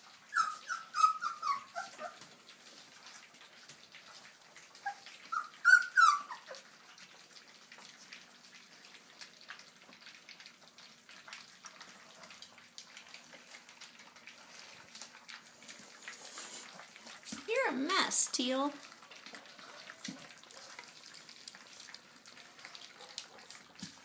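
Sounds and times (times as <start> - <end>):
puppies whimpering and yelping: 0.0 - 2.4, 4.6 - 7.2
puppies lapping food: 0.0 - 24.0.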